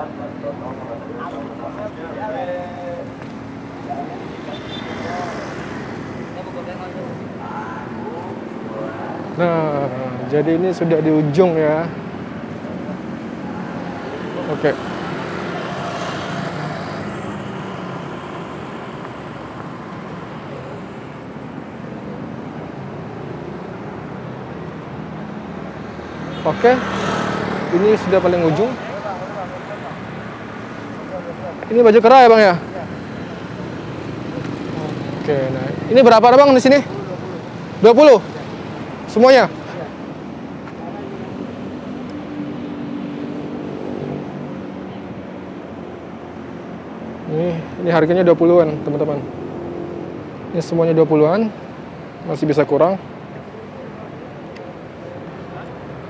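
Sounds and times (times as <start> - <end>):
city street traffic rumble: 0.0 - 56.0.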